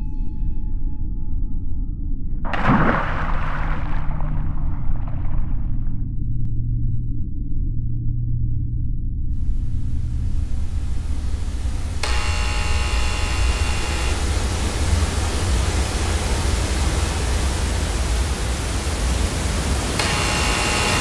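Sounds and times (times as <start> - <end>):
deep low rumble: 1.4 - 12.1
television static hiss: 9.9 - 21.0.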